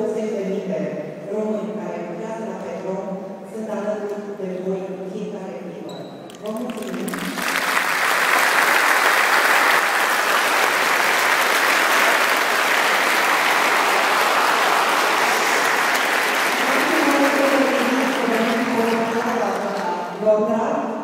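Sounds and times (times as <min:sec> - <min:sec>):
large crowd applauding: 0:06.5 - 0:20.2.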